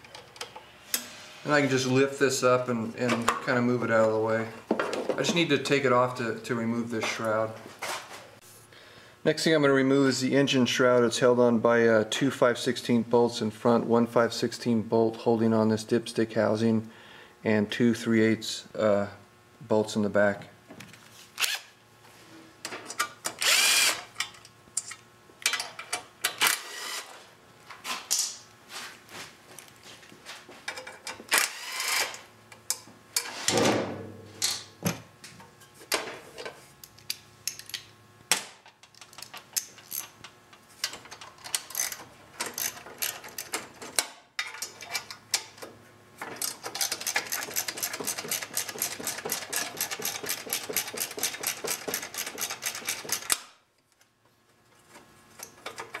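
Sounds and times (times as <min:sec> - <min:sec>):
hand tools clicking on metal: 0:46.3 - 0:53.4.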